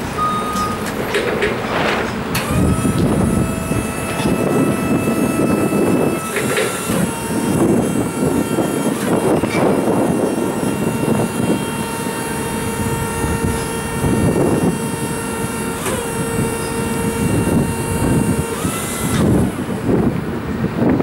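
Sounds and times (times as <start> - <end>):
forklift hydraulic pump whining: 0.0 - 21.0
rough rumble: 0.9 - 14.8.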